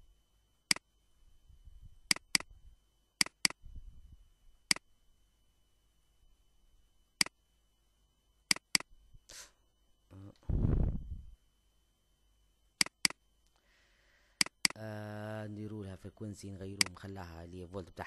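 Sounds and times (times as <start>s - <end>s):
computer mouse clicking: 2.1s - 2.5s, 3.2s - 3.6s, 8.5s - 8.9s, 12.8s - 13.2s, 14.4s - 14.8s.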